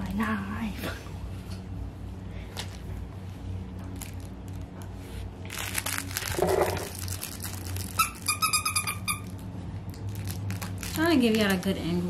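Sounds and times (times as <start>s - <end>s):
puppy rustling and crinkling: 2.6s - 12.0s.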